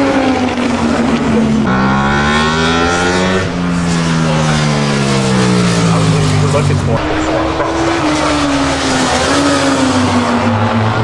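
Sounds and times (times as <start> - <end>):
racing motorcycle engine at high revs: 0.0 - 11.0.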